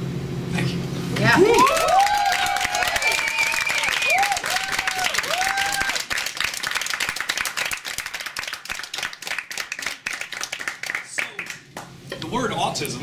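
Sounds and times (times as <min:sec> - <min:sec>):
people whooping: 0:01.2 - 0:06.9
audience clapping: 0:01.6 - 0:12.0.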